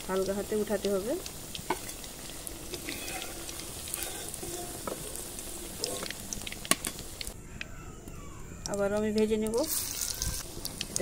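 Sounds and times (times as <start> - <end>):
deep-frying sizzle with pops: 0.0 - 7.4, 8.6 - 11.0.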